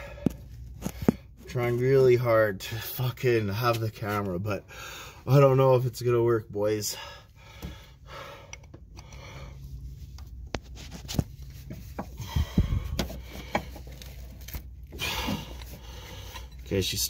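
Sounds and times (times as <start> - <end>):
heavy breathing: 0.0 - 1.4, 4.6 - 5.3, 6.8 - 9.9, 12.0 - 14.1, 14.9 - 16.6.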